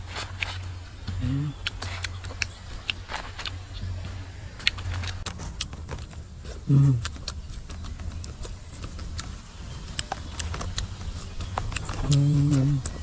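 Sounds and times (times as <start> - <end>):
chewing clicks and smacks: 0.2 - 3.9, 4.6 - 13.0
person humming: 1.1 - 1.8, 6.7 - 7.1.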